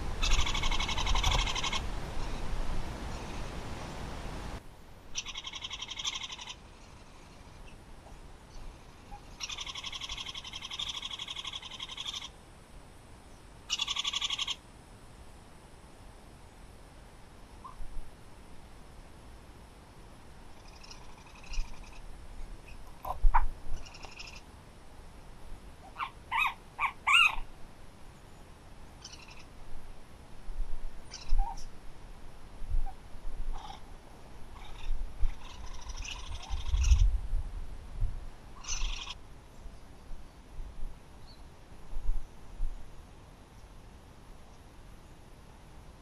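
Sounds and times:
birds calling and chirping: 0.2s - 2.5s, 5.2s - 12.3s, 13.7s - 14.6s, 20.6s - 24.5s, 25.8s - 27.5s, 29.0s - 29.6s, 31.1s - 31.7s, 34.5s - 37.2s, 38.6s - 40.2s.

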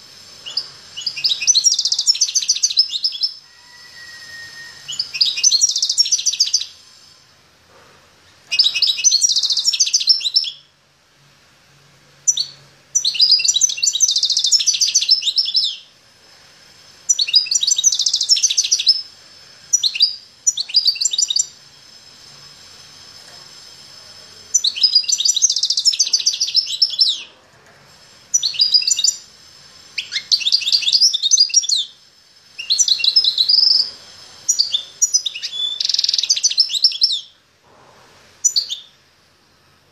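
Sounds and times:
songbird singing high trills: 0.4s - 6.9s, 8.5s - 10.7s, 12.3s - 15.9s, 17.1s - 19.1s, 19.7s - 21.6s, 24.5s - 27.3s, 28.3s - 29.3s, 30.0s - 37.4s, 38.4s - 39.0s.

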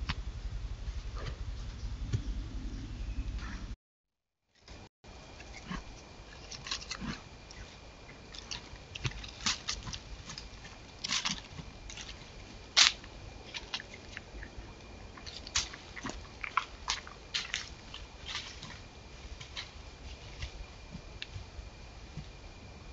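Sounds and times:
deer stepping in dry leaves: 8.2s - 22.2s.

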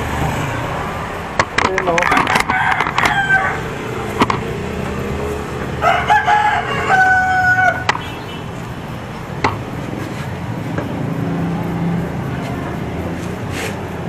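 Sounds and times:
sharp clicks: 1.3s - 3.2s, 4.1s - 5.0s, 7.8s - 8.1s
rooster crowing: 2.0s - 8.5s.

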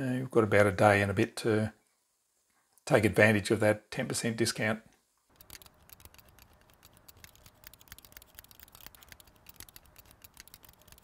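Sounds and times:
light scratching: 5.3s - 11.0s
rapid faint clicking: 5.3s - 11.0s.

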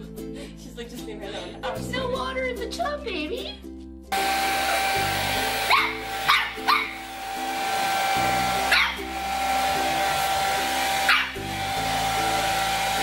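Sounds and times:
hair dryer whirring: 4.1s - 13.0s
puppy barking: 5.6s - 7.0s, 8.6s - 9.1s, 11.0s - 11.4s.

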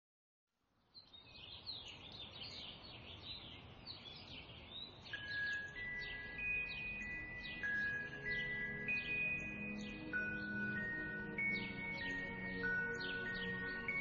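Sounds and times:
sparrows chirping: 0.8s - 14.0s
high sustained music notes: 5.1s - 14.0s.

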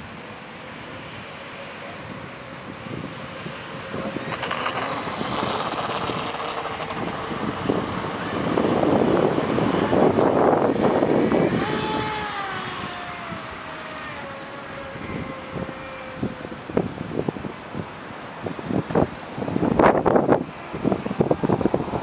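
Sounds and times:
water rushing and spraying: 0.3s - 22.0s
electric motor whining: 4.3s - 17.6s.

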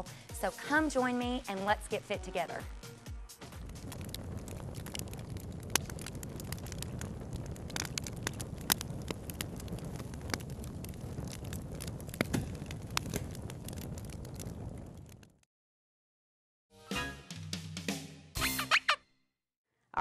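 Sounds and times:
fire crackling: 0.0s - 15.5s
fire popping and snapping: 2.6s - 15.5s.

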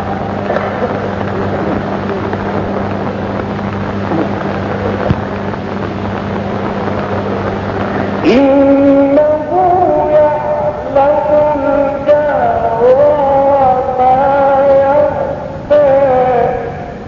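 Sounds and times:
recording hiss and hum: 0.0s - 17.0s
person reciting: 7.0s - 17.0s.

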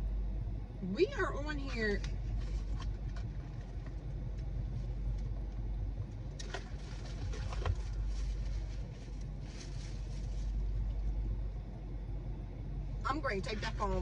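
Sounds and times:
car engine idling: 0.0s - 14.0s
faint clicks and rustles: 2.0s - 11.3s.

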